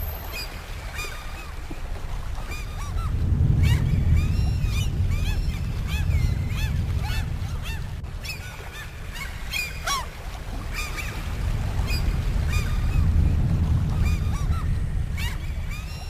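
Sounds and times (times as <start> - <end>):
low rumble: 1.9 - 9.5, 10.1 - 16.0.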